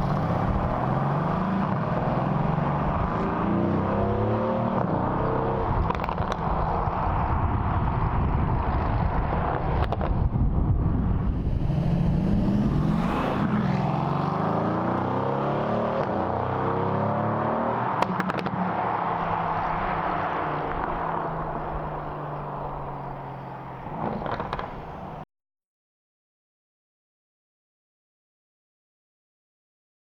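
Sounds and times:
car engine revving through gears: 0.0s - 6.4s, 11.4s - 22.0s.

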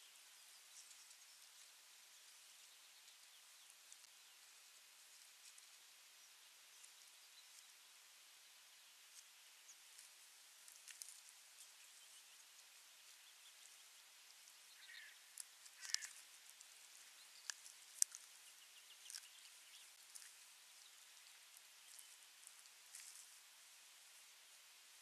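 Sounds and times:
bird tearing flesh clicks and snaps: 15.4s - 16.2s.

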